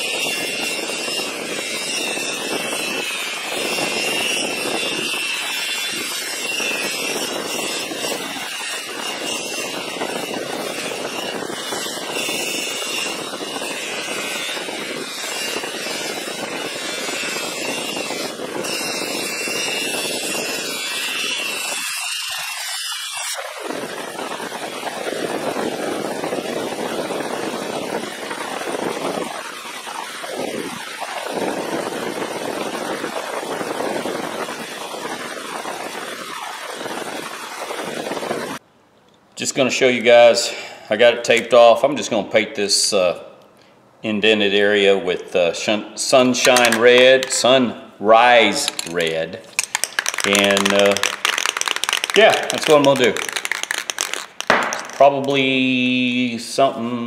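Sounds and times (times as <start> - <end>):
bench polisher motor whining: 0.0 - 23.4.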